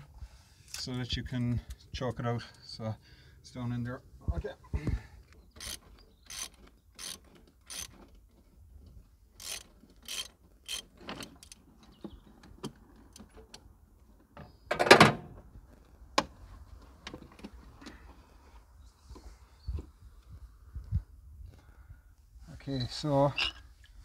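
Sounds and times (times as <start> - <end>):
ratchet wrench clicking: 5.6 - 8.0, 9.4 - 11.6.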